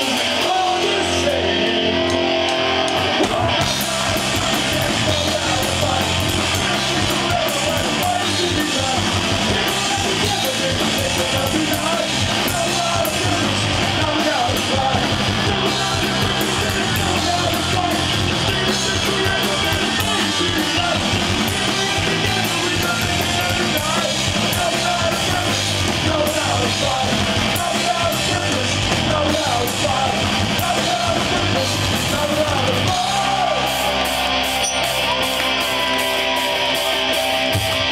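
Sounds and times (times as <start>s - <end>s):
punk rock band playing live: 0.0s - 37.9s
person shouting lead vocal: 26.2s - 34.2s.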